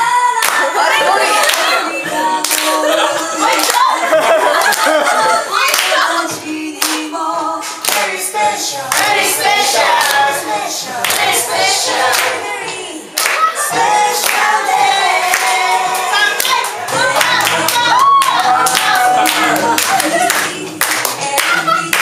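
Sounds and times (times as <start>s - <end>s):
group singing: 0.0s - 22.0s
hands clapping: 0.4s - 1.8s, 2.4s - 2.8s, 3.5s - 3.9s, 4.6s - 5.1s, 5.7s - 6.0s, 6.8s - 8.2s, 8.9s - 10.3s, 11.0s - 12.4s, 13.2s - 14.6s, 15.2s - 22.0s.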